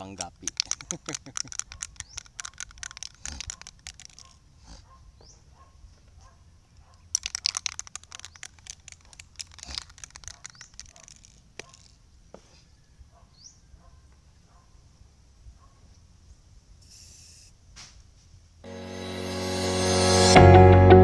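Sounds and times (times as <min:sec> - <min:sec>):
spray can mixing ball rattling: 0:00.0 - 0:04.4, 0:07.1 - 0:12.0.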